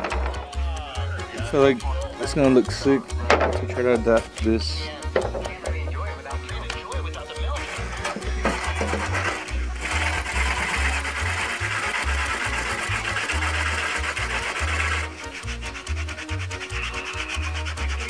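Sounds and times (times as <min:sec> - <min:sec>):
music beat: 0:00.0 - 0:18.0
rotary tool grinding plastic: 0:07.6 - 0:18.0
sanding sponge scraping: 0:07.6 - 0:18.0.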